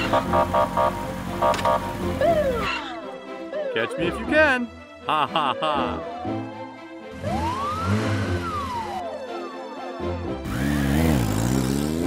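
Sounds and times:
siren electronic beeps: 7.1s - 9.5s.

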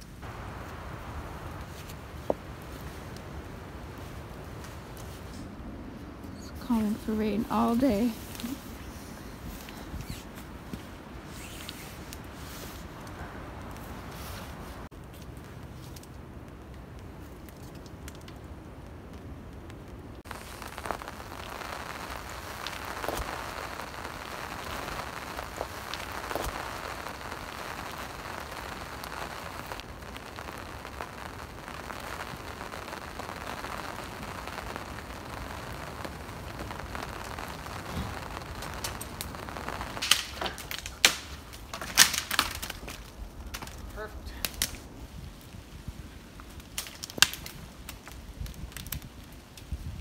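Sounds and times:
rain pattering: 0.0s - 50.0s
sharp snaps: 36.6s - 44.8s.

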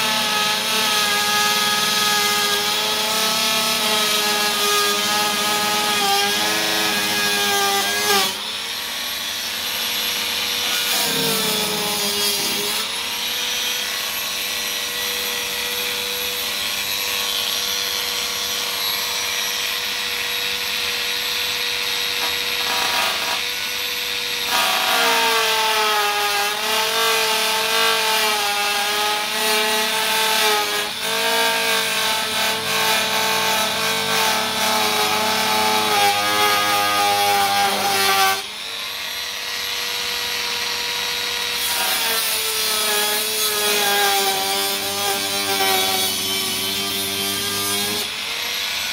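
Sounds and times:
rotary tool whining: 4.1s - 14.4s.

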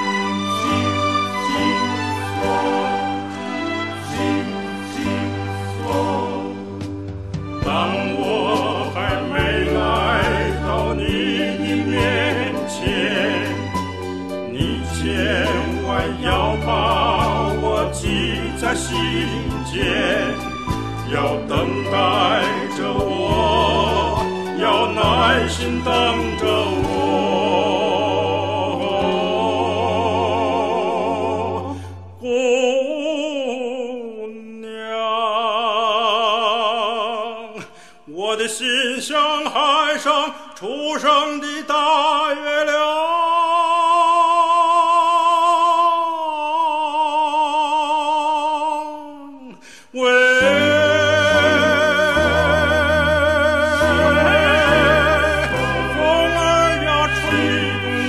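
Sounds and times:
low musical accompaniment: 0.0s - 31.6s, 50.4s - 58.0s
person singing with vibrato: 7.5s - 58.0s.

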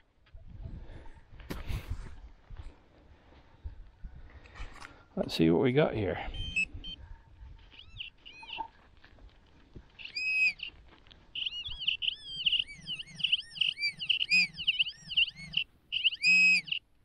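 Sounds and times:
metal detector warbling tones: 11.4s - 16.8s.

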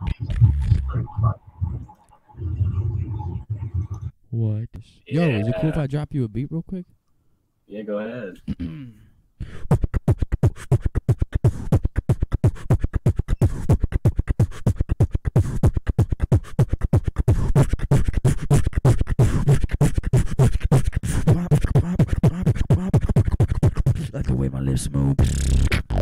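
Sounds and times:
beatboxing into a microphone: 0.0s - 4.1s, 8.4s - 26.0s
buzzing pitched bass line: 0.0s - 4.1s, 21.2s - 26.0s.

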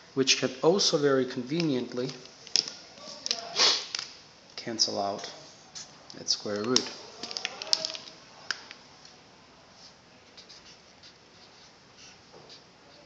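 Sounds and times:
marker pen scratching on paper: 10.4s - 13.0s.

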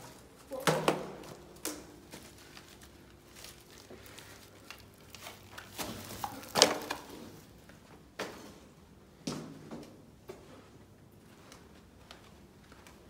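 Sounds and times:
small crackles: 1.6s - 7.7s
footsteps crunching through dry leaves: 2.0s - 6.6s.

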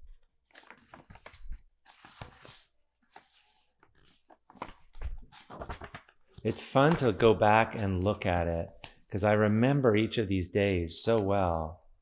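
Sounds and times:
sketchbook pages rustling: 0.0s - 9.0s.

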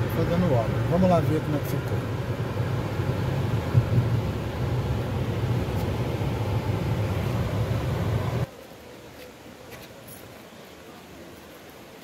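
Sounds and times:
car engine and tyre rumble: 0.0s - 8.5s.

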